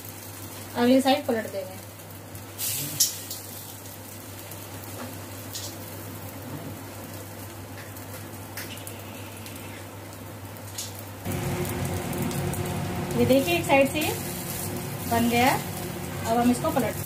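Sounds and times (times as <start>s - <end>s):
bread frying in oil: 0.0s - 17.0s
low hum: 11.2s - 17.0s.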